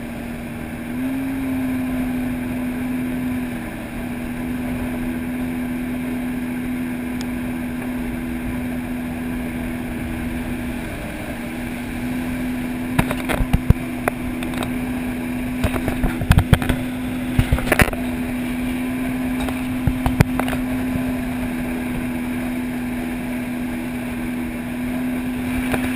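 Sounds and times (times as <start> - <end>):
personal watercraft engine droning: 0.0 - 25.9.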